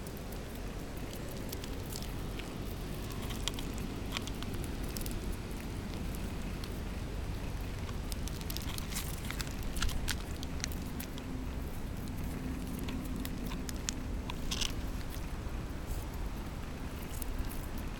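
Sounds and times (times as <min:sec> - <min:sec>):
puppy paws clicking on asphalt: 0:00.0 - 0:17.9.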